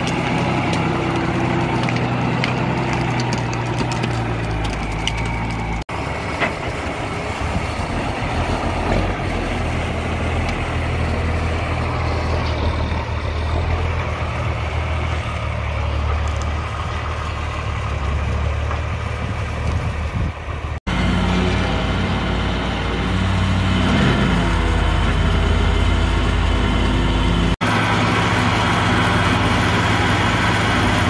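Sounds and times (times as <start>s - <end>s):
branches snapping under tyres: 0.0s - 5.8s
truck diesel engine droning: 0.0s - 31.0s.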